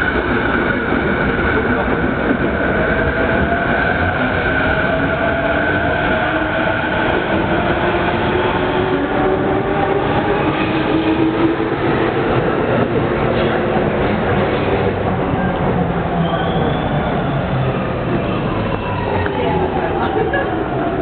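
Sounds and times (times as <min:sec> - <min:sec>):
train rumble: 0:00.0 - 0:21.0.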